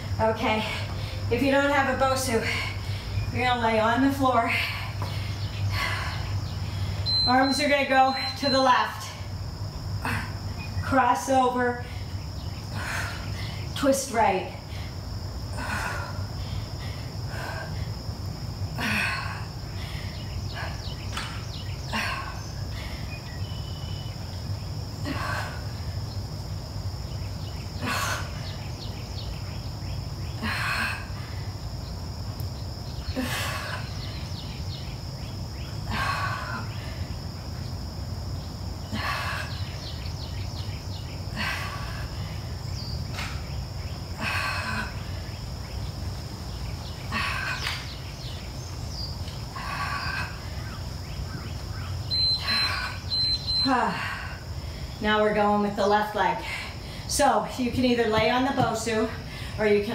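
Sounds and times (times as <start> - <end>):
high-pitched insect drone: 11.8 - 55.0.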